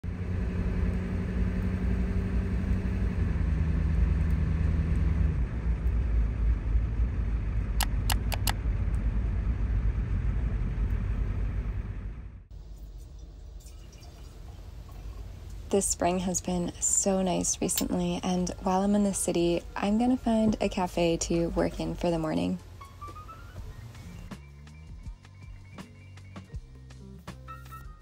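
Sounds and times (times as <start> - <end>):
van engine rumble: 0.0 - 12.8, 14.7 - 27.4
road noise: 0.0 - 27.4
quick clicks: 7.8 - 8.6.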